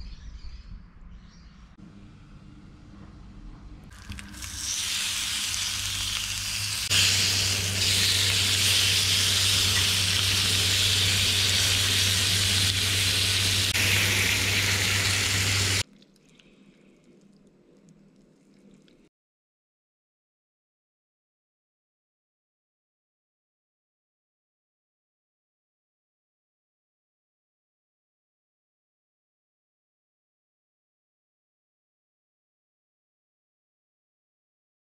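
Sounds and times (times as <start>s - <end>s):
low hum: 0.7s - 18.2s
tap water running into sink: 3.9s - 6.2s
fish sizzling in grill pan: 3.9s - 15.8s.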